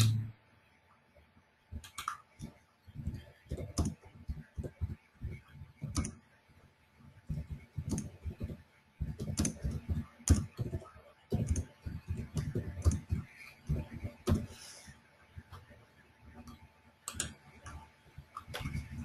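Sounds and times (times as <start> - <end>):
computer keyboard typing: 1.8 - 6.2, 7.3 - 14.5, 16.4 - 19.0.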